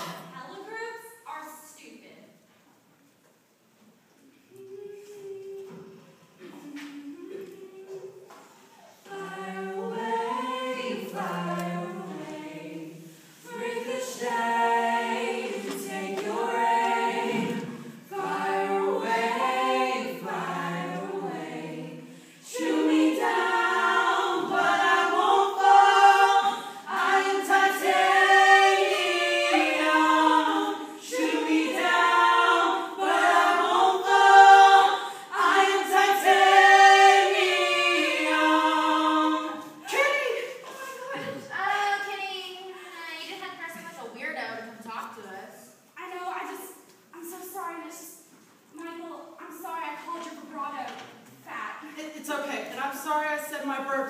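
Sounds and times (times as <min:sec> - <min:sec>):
group singing a cappella: 0:04.5 - 0:41.7.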